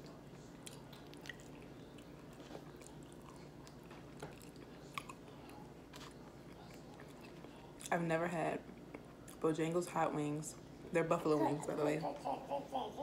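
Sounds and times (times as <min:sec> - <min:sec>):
faint chewing of food: 0:00.0 - 0:08.0, 0:08.6 - 0:09.4.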